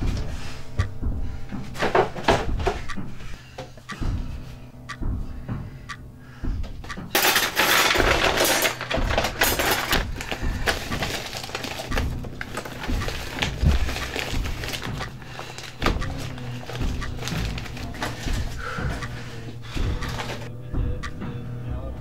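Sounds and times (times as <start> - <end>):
objects rattling in a drawer: 7.1 - 18.6.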